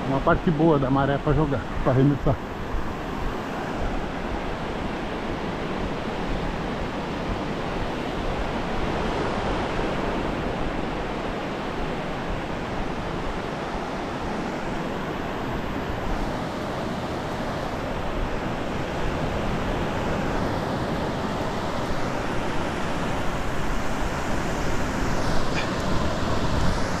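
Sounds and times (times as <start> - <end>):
ocean surf washing onto beach: 0.0 - 27.0.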